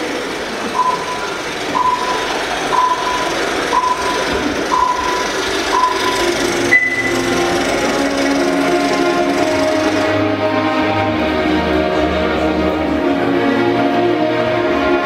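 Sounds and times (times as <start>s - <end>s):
higher beep: 0.8s - 7.2s
countdown beeps: 0.8s - 7.3s
music: 4.8s - 15.0s.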